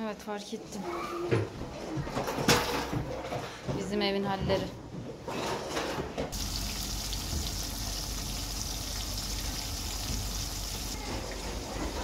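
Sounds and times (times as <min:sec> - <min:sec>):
vegetables frying in oil: 0:06.3 - 0:12.0.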